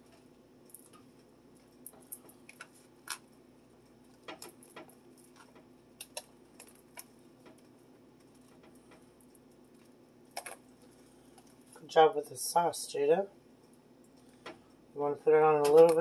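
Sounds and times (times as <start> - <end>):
steady low hum: 0.0 - 16.0
mushrooms dropping onto pizza: 10.3 - 10.6.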